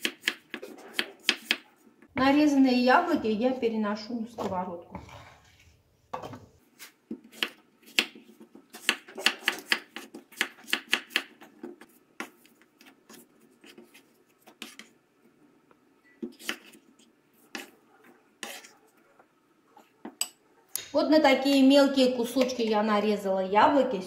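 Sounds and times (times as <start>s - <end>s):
knife chopping on wooden board: 0.0s - 1.6s, 8.8s - 11.4s.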